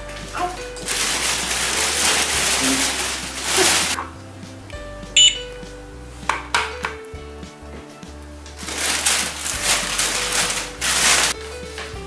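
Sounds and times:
plastic bag rustling: 0.0s - 4.2s, 8.5s - 12.0s
background music: 0.0s - 12.0s
toy cash register beep: 5.2s - 5.4s.

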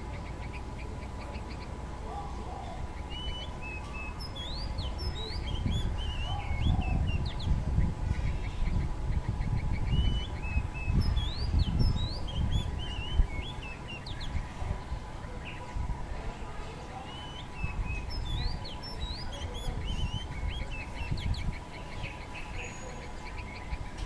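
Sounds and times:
faint steady hum: 0.0s - 24.0s
bird singing whistled notes: 3.0s - 14.5s, 17.0s - 24.0s.

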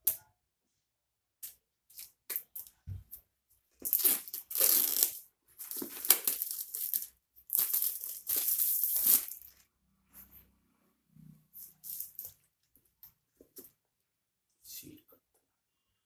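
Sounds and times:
knife cutting tape: 3.8s - 9.6s.

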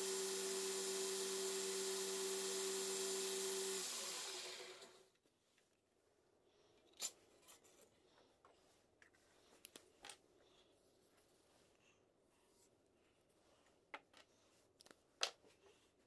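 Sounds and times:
belt grinder humming and hissing: 0.0s - 5.0s.

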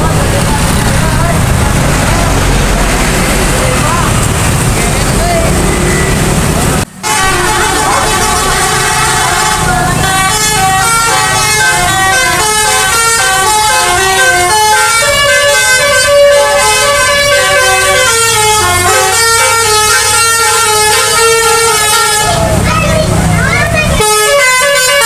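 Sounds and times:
musical bus horn tune: 7.0s - 22.6s, 24.0s - 25.0s.

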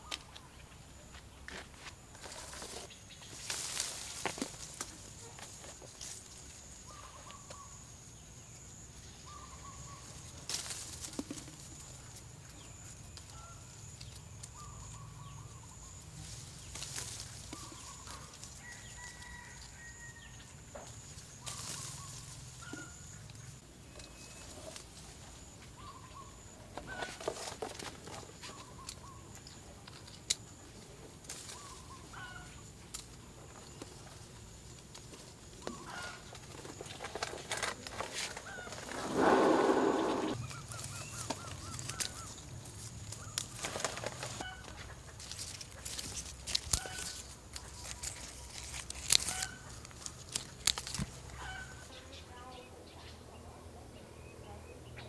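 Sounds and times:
rustling: 1.5s - 7.6s, 9.8s - 19.8s, 20.8s - 25.6s, 26.4s - 51.9s
chickens clucking: 24.0s - 29.9s, 35.2s - 42.4s, 43.3s - 48.2s, 51.2s - 53.6s.

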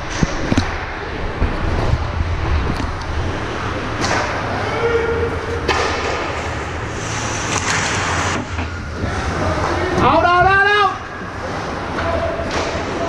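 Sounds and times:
hockey sticks and puck clacking: 3.9s - 4.8s, 5.5s - 13.0s.

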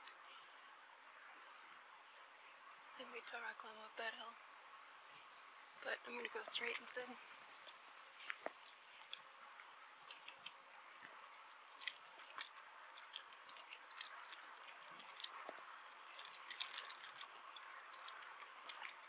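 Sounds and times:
bicycle ticks and rattles: 5.7s - 19.0s
bicycle rolling hiss: 6.6s - 19.0s.

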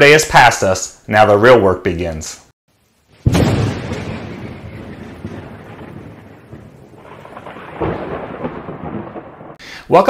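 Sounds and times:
thunder rumbling: 3.2s - 9.6s.

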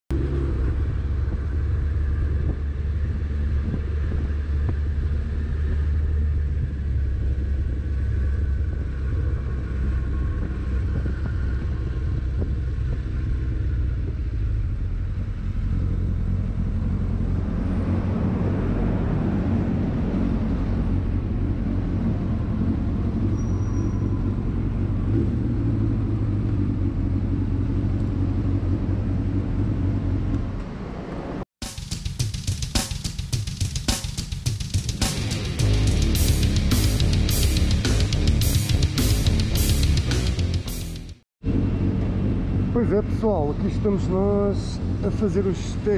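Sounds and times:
motorcycle engine running: 0.1s - 17.6s, 31.6s - 42.6s
wind rumble on microphone: 0.1s - 27.4s.

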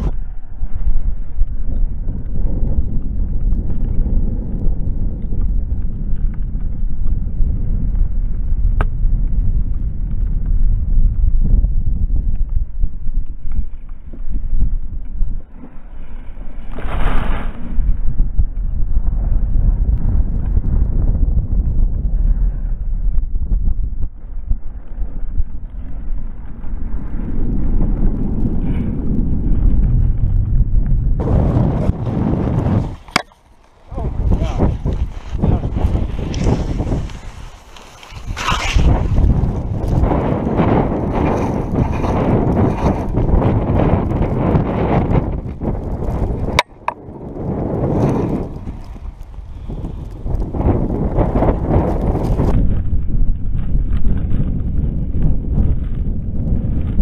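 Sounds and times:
wind rumbling over microphone: 0.0s - 57.0s
skis rushing in snow: 15.5s - 18.1s, 31.2s - 46.6s, 47.4s - 54.7s.

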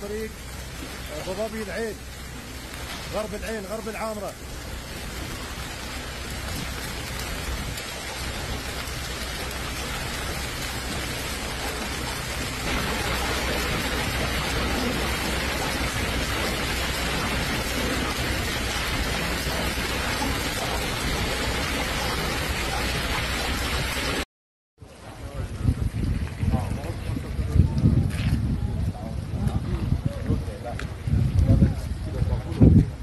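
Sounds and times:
hailstones pelting a paved road: 0.0s - 24.2s.

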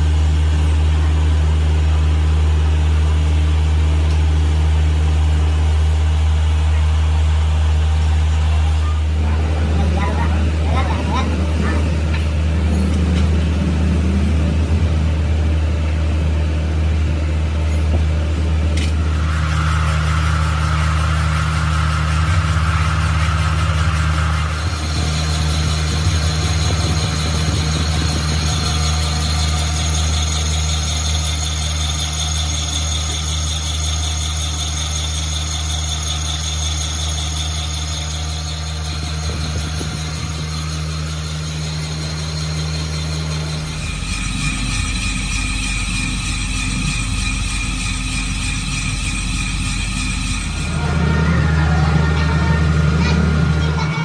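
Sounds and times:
thin high whine: 17.7s - 54.0s
motor humming: 18.5s - 54.0s
higher steady tone: 37.9s - 53.6s.

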